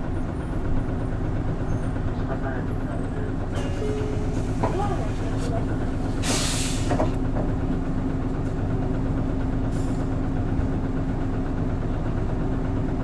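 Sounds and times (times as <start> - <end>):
bus engine humming: 0.0 - 13.0
short air hiss: 6.2 - 7.0.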